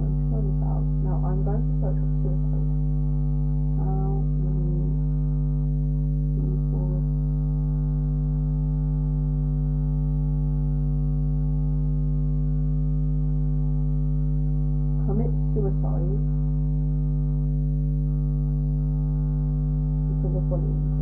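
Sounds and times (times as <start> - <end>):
electrical mains hum: 0.0 - 21.0
woman murmuring: 3.8 - 5.0, 6.4 - 7.0.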